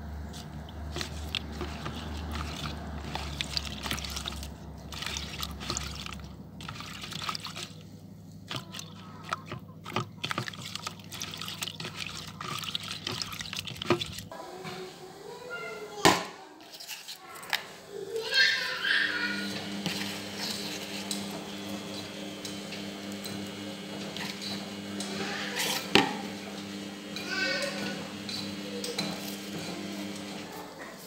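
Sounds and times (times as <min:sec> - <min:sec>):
water splashing in a bowl: 0:00.2 - 0:07.9, 0:08.5 - 0:14.3.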